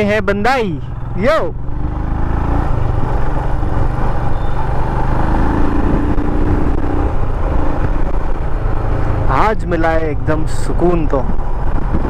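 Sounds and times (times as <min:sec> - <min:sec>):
motorcycle engine running: 0:00.0 - 0:10.3
wind and road noise: 0:00.0 - 0:12.0.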